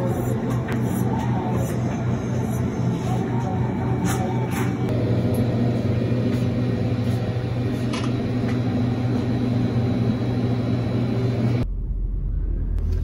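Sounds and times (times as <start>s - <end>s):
low mechanical hum: 0.0s - 13.0s
deep low rumble: 11.6s - 13.0s.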